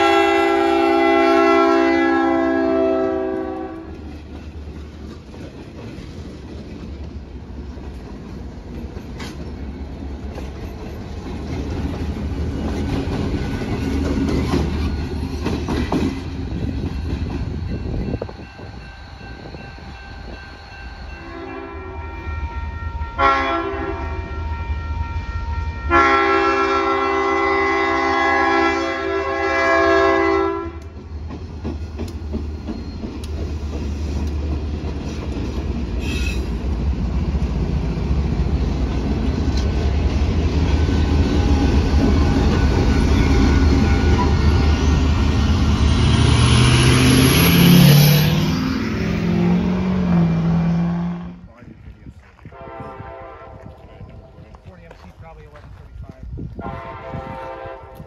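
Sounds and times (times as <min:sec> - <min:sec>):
train air horn blasts: 0:00.0 - 0:04.1, 0:21.1 - 0:30.9, 0:50.1 - 0:51.4, 0:52.4 - 0:54.3, 0:56.6 - 0:58.0
train rumble and wheel clatter: 0:00.0 - 0:58.0
vehicle engine revving: 0:45.4 - 0:51.4.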